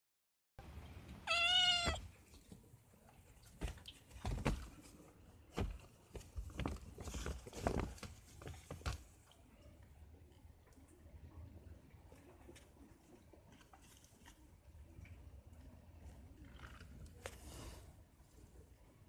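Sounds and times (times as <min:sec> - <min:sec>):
kitten meowing: 0:01.2 - 0:02.0.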